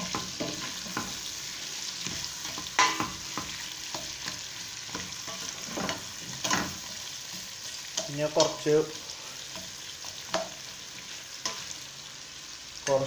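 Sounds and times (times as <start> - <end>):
onions sizzling in oil: 0.0 - 13.0
utensil scraping and knocking pot: 4.9 - 7.0.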